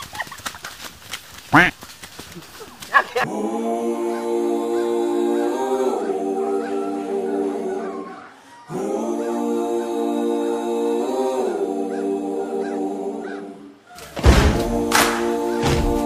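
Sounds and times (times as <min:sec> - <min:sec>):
wordless choir-like vocal chords: 0:03.2 - 0:16.0.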